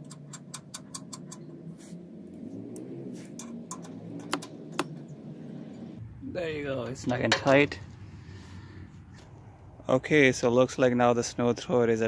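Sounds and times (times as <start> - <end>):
socket ratchet clicking: 0.0 - 1.5.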